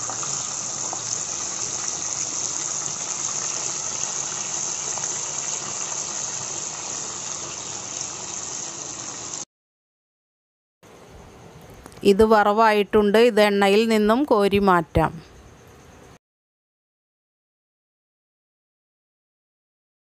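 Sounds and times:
fish frying in hot oil: 0:00.0 - 0:09.5.

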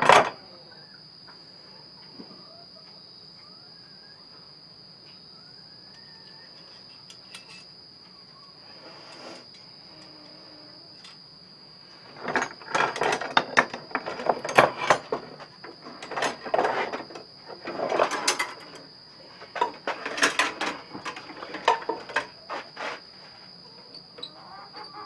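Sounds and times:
cricket trill: 0:00.0 - 0:25.0
steel trap clanking and rattling: 0:12.2 - 0:18.8, 0:19.5 - 0:22.4.

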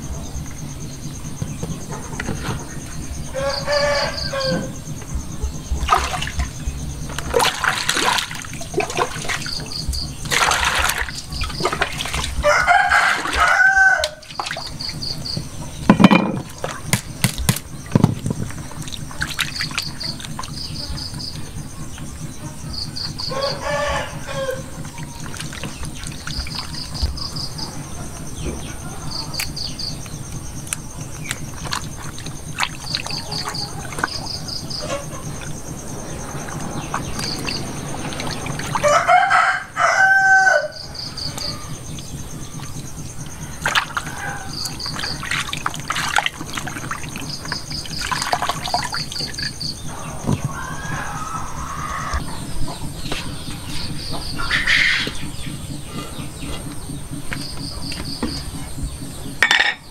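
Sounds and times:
water sloshing and splashing: 0:01.4 - 0:39.8, 0:40.7 - 0:59.9
rooster crowing: 0:03.2 - 0:04.8, 0:12.4 - 0:14.3, 0:23.2 - 0:25.2, 0:36.0 - 0:41.9, 0:43.3 - 0:44.9, 0:49.9 - 0:52.8.

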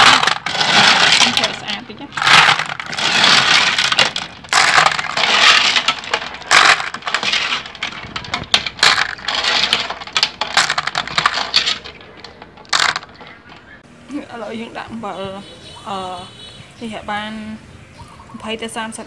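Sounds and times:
clam shells clattering in metal pot: 0:00.0 - 0:13.8.

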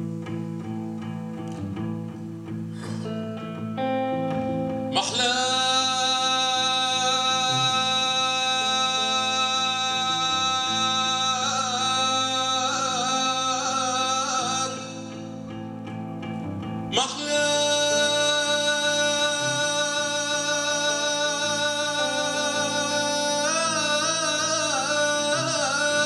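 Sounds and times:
man singing into a microphone: 0:04.9 - 0:15.7, 0:16.9 - 0:26.0.

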